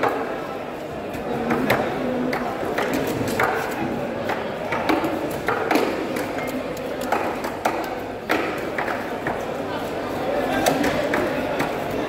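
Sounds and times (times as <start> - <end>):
sharp knocks and clacks: 1.5 - 9.4.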